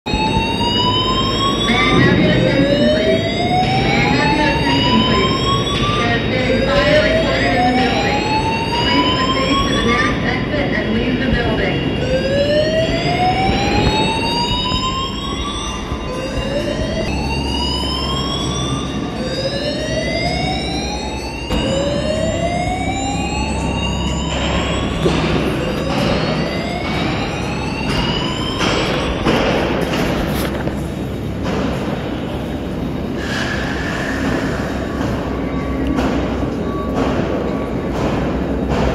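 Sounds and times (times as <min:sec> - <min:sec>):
fire alarm whoop tones: 0:00.1 - 0:10.2, 0:11.6 - 0:29.4
steady high alarm tone: 0:00.1 - 0:30.2.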